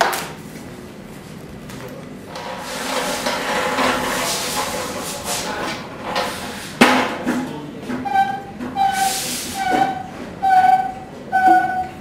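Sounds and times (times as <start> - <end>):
pallet truck handle squeaking: 8.0 - 12.0.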